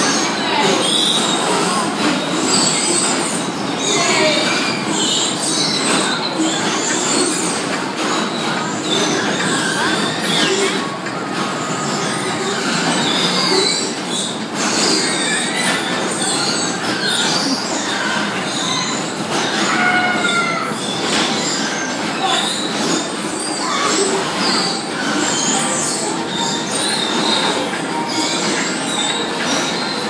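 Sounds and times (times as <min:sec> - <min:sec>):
bumper cars running and bumping: 0:00.0 - 0:30.0
short high squeals: 0:00.0 - 0:30.0.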